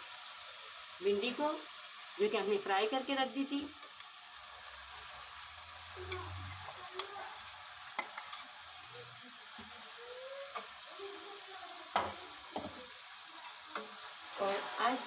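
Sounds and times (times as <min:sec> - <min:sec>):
meat sizzling in a pot: 0:00.0 - 0:15.0
metal spoon scraping a pot: 0:06.1 - 0:08.6.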